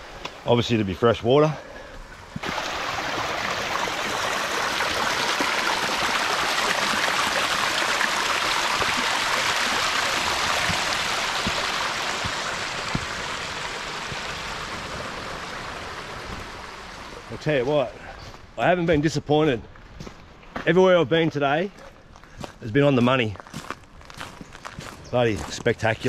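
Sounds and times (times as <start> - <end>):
water rushing over rock: 2.4 - 17.6.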